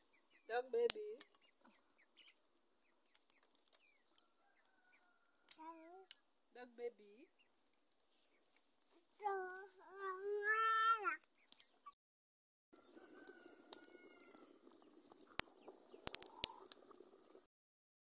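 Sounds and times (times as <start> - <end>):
faint background noise: 0.0 - 12.0.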